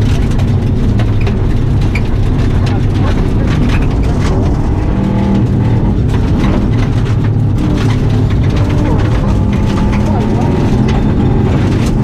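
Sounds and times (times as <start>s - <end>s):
car engine running hard: 0.0s - 12.0s.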